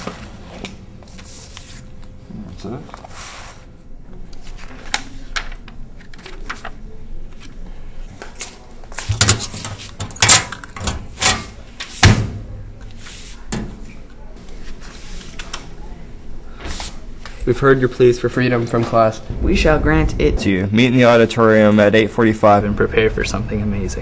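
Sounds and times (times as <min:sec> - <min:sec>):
sharp knocks and bangs: 0:19.2 - 0:21.7.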